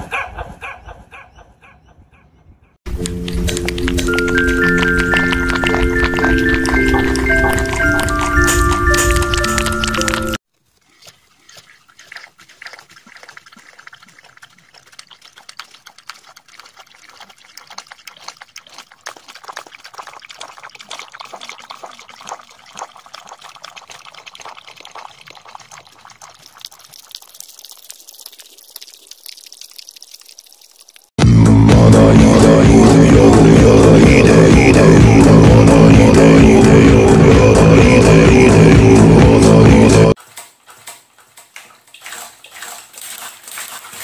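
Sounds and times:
puppy lapping and chewing: 0:02.9 - 0:31.1.

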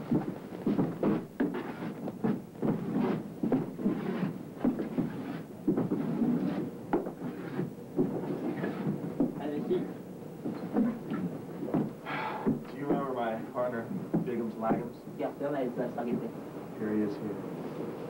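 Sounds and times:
footsteps: 0:00.0 - 0:09.4, 0:10.4 - 0:13.2.

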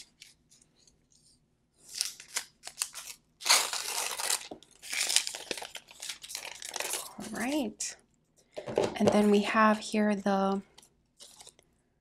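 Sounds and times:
paper tearing: 0:01.9 - 0:07.5
paper rustling: 0:11.2 - 0:11.6.

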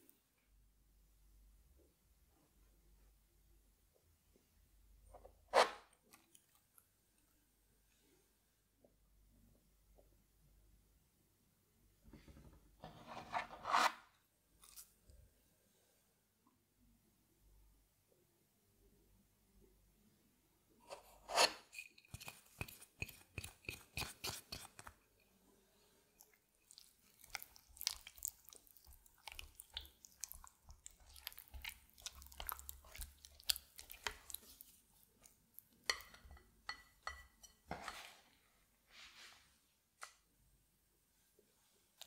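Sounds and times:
spatula stirring wet mixture: 0:20.8 - 0:38.3.

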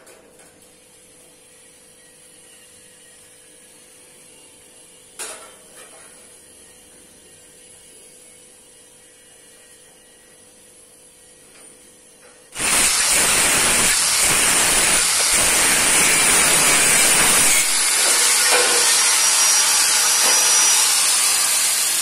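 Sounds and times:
angle grinder cutting metal: 0:12.6 - 0:22.0.

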